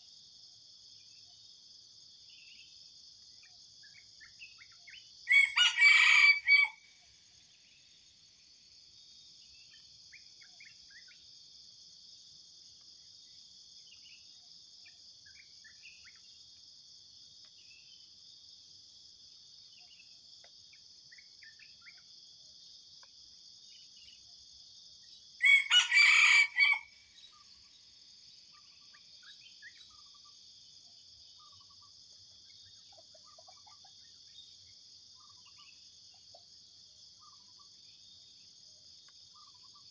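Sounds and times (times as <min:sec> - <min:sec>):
rooster crowing: 0:05.3 - 0:06.8, 0:25.4 - 0:27.0.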